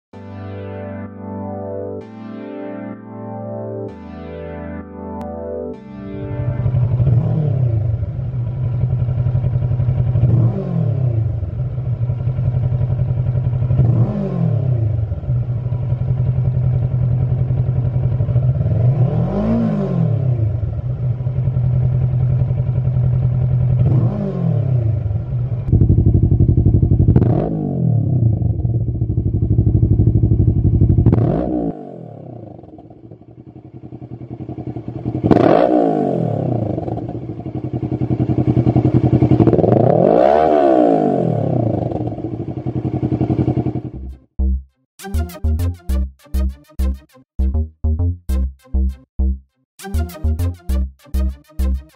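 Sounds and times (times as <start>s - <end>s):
motorcycle engine idling and revving: 6.5s - 44.6s.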